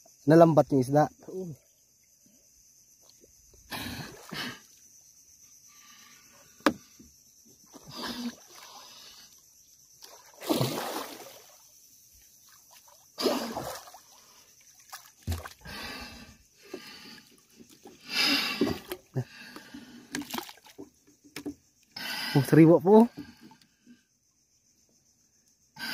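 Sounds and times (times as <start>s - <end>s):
water splashing and sloshing: 5.8s - 22.0s.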